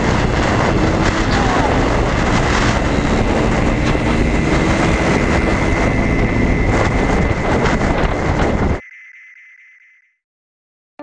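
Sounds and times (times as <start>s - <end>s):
scooter engine running: 0.0s - 8.8s
wind rush on microphone: 0.0s - 8.8s.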